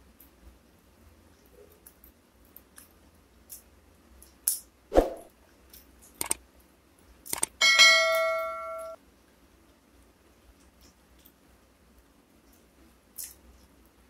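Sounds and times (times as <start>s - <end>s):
sharp clicks: 6.2s - 6.4s, 7.3s - 7.6s
bell-like ding: 7.6s - 9.0s.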